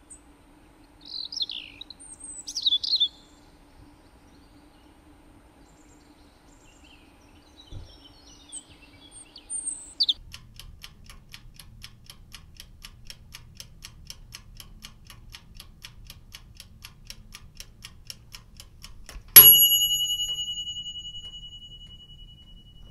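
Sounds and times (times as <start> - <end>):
faint bird chirps: 1.0 - 5.0, 5.6 - 10.2
clock ticking: 10.1 - 22.9
bell ding: 19.4 - 22.9.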